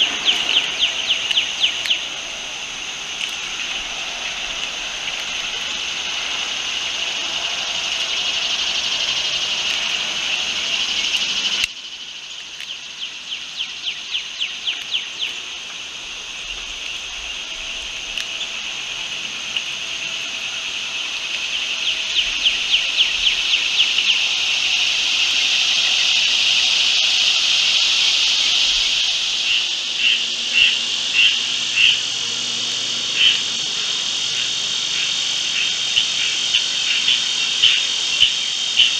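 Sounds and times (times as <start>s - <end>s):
rapid chirping ticks: 0.0s - 20.2s, 33.2s - 38.9s
chorus of crickets: 0.0s - 38.9s.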